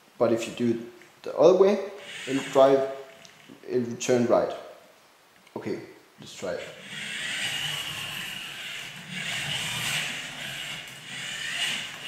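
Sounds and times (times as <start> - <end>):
electric motors whining: 2.0 - 3.6, 6.4 - 12.0.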